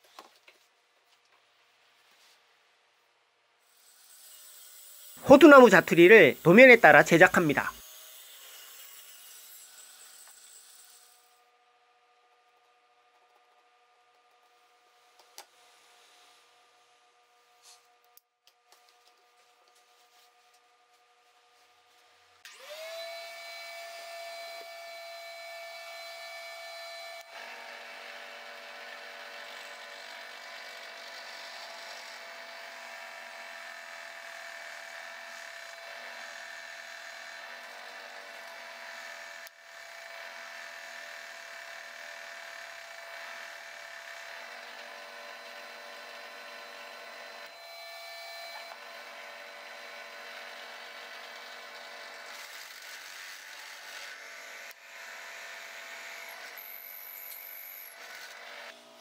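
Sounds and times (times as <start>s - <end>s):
drill press boring into wood: 22.5s - 58.8s.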